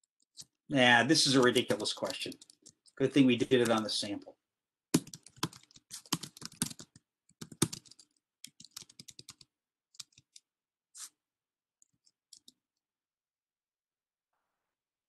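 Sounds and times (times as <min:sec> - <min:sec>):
computer keyboard typing: 0:01.2 - 0:03.9, 0:04.9 - 0:10.4.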